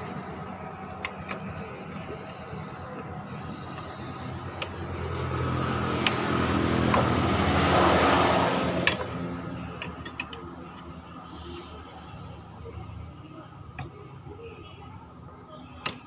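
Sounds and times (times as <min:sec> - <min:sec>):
low engine hum: 0:00.0 - 0:16.0
vehicle engine revving: 0:03.3 - 0:10.5.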